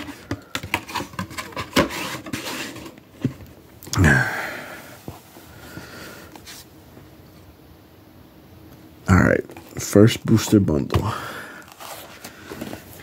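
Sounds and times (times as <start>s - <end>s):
cardboard packaging clicks and scrapes: 0.0s - 3.5s, 11.7s - 13.0s.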